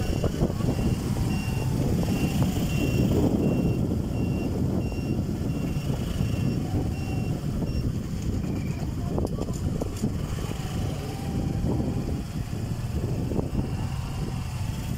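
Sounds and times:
high electronic beep: 0:00.0 - 0:08.8
low rumble of slow traffic: 0:00.0 - 0:14.9.

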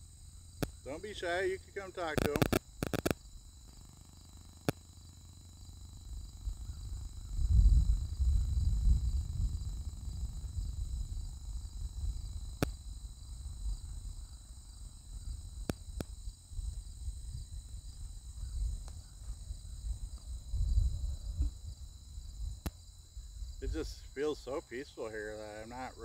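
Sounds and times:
insect chorus trilling: 0:00.0 - 0:26.0
sharp clicks: 0:00.6 - 0:04.9, 0:12.6 - 0:12.8.

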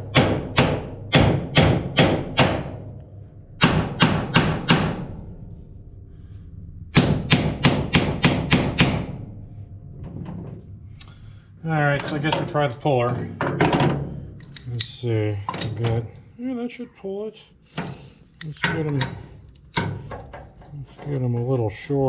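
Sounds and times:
hammer on metal: 0:00.0 - 0:03.0, 0:03.6 - 0:05.2, 0:06.9 - 0:09.3.

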